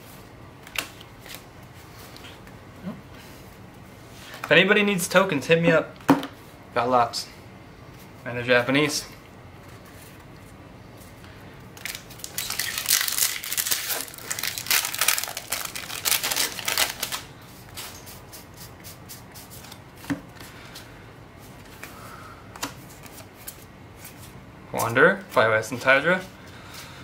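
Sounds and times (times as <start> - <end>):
foil wrapper crinkling: 11.8 - 18.0
cards being handled: 11.8 - 25.0.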